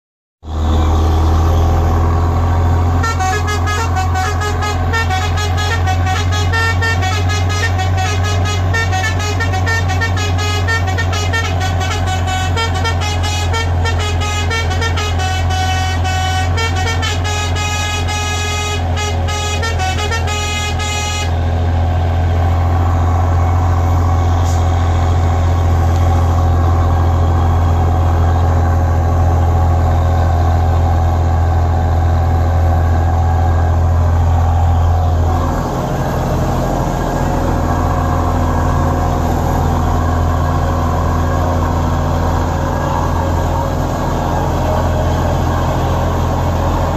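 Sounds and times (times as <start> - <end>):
truck engine drone: 0.4 - 46.9
truck musical horn melody: 0.5 - 46.9.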